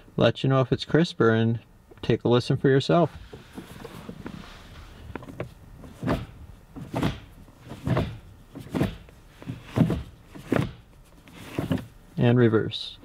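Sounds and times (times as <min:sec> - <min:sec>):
gear lever clunking: 0:05.0 - 0:12.0.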